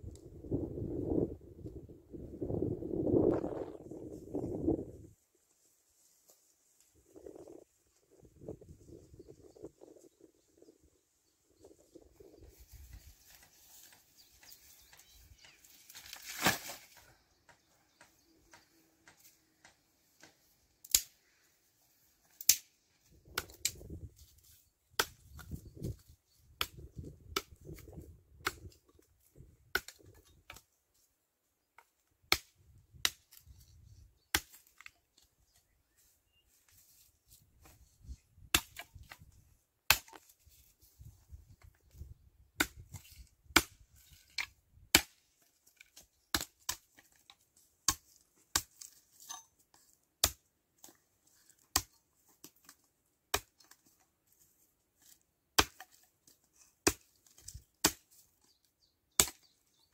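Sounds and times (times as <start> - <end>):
axe chopping branches: 15.9 - 17.0, 22.2 - 23.9, 25.0 - 26.0, 28.4 - 28.8, 34.3 - 34.9, 38.5 - 39.2, 39.9 - 40.6, 42.6 - 54.0, 55.0 - 58.2, 59.1 - 59.5.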